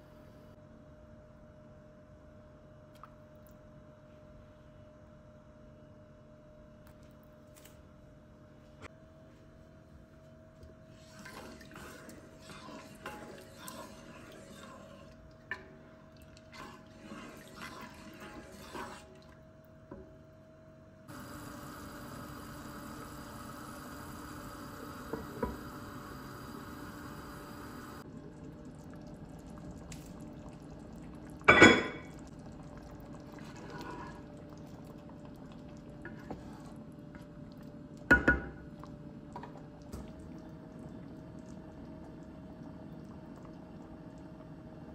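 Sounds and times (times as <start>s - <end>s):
wooden spoon stirring soup: 10.9s - 19.4s, 32.4s - 41.5s.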